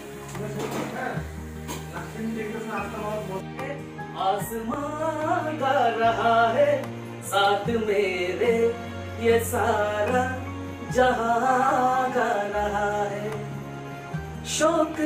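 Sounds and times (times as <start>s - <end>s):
person singing with instruments: 3.3s - 15.0s.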